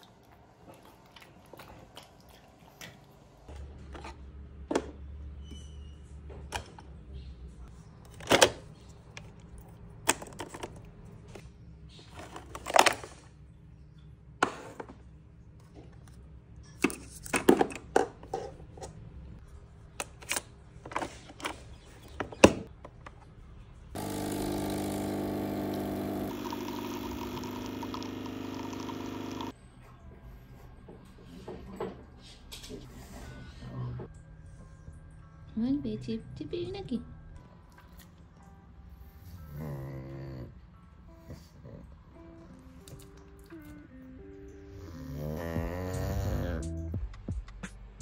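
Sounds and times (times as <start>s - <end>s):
coffee machine pump buzzing: 24.0s - 29.5s.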